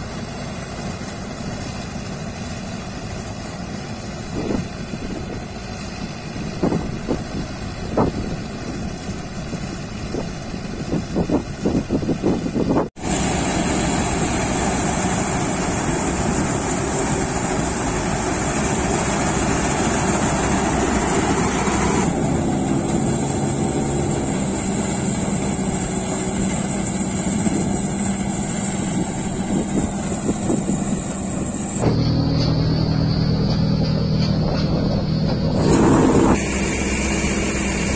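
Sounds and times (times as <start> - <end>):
combine harvester running: 0.0 - 37.9
wind buffeting microphone: 4.2 - 32.0
high whine: 13.0 - 37.9.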